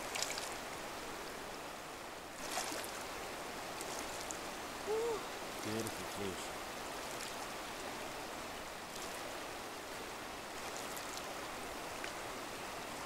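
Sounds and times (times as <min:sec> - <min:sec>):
small splashes: 0:00.0 - 0:00.6, 0:02.4 - 0:03.0, 0:03.8 - 0:07.5
river water running: 0:00.0 - 0:13.0.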